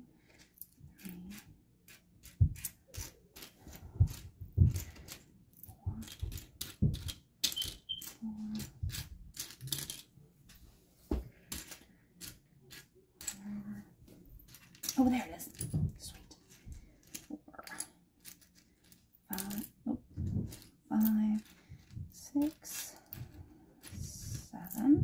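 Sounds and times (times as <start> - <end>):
plastic bricks clicking and clattering: 5.9 - 10.6, 11.5 - 13.4, 14.4 - 24.9.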